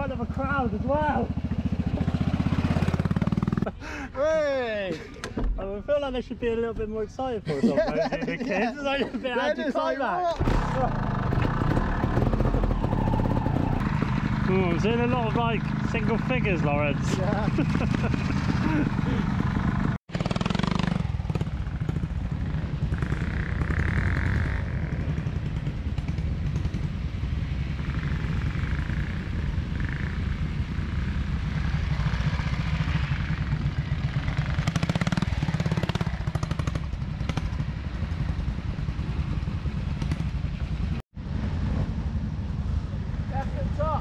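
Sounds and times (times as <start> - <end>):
two-stroke engine at low revs: 0.0 - 3.8, 10.4 - 41.0.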